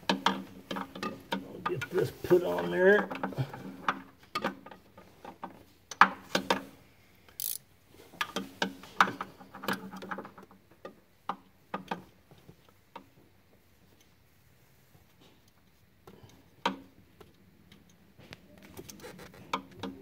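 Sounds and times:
ratcheting wrench clicking: 7.4s - 7.6s.

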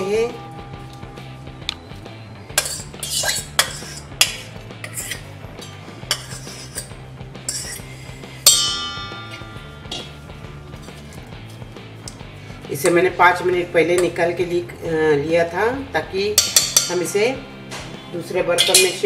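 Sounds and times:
spoon scraping steel bowl: 2.5s - 8.1s
loud steel clang: 8.4s - 10.7s.

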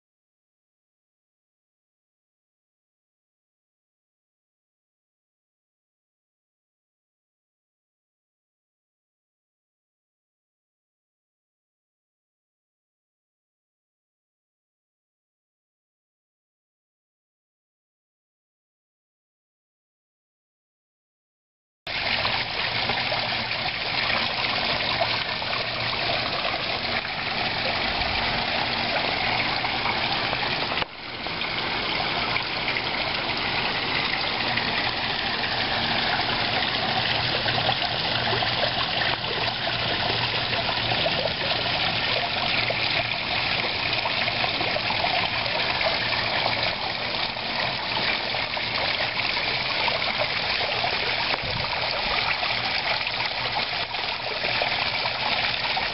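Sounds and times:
low steady hum: 21.9s - 55.9s
waterfall splashing into pond: 21.9s - 55.9s.

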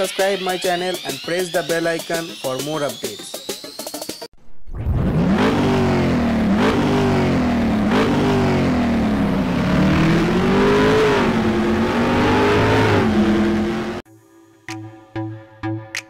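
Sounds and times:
vehicle engine revving: 4.8s - 14.0s.

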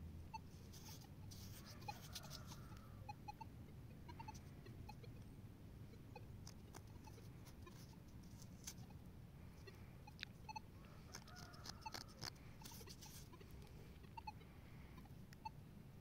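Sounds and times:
soft clicks and rustles: 9.6s - 13.8s.

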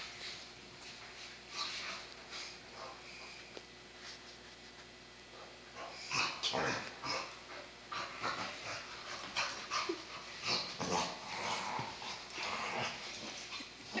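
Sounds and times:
dogs growling and yipping: 5.8s - 14.0s.

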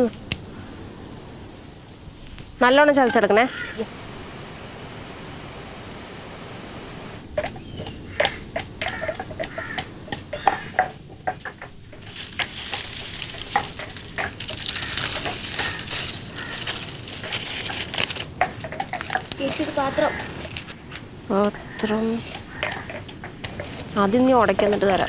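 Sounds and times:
steady hiss: 0.0s - 25.0s
pestle pounding in stone mortar: 7.4s - 16.6s, 21.4s - 25.0s.

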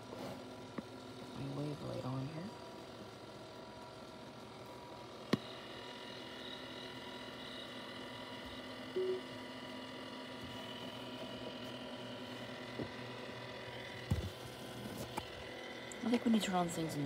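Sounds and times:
electrical whine: 5.3s - 10.1s
short low tone: 9.0s - 9.3s.

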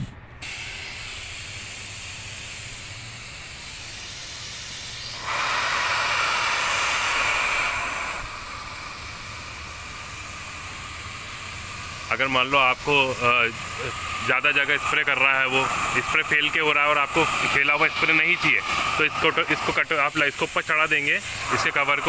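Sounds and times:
piston pump running: 0.0s - 22.0s
high-pressure water spray hissing: 0.4s - 22.0s.

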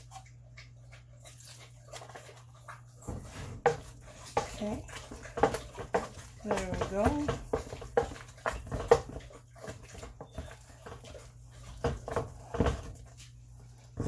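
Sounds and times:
potato masher thumping in a pot: 5.3s - 9.2s.

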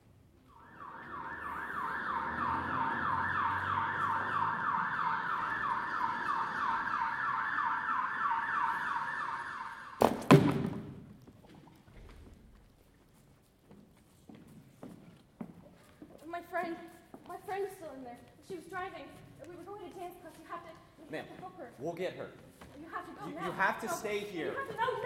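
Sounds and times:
siren yelping: 0.5s - 10.0s
loud crashing impacts: 10.0s - 11.2s.

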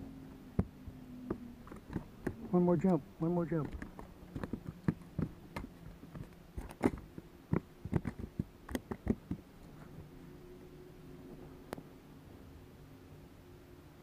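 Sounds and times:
low steady hum: 0.0s - 14.0s
fish flopping on carpeted deck: 3.6s - 10.0s.

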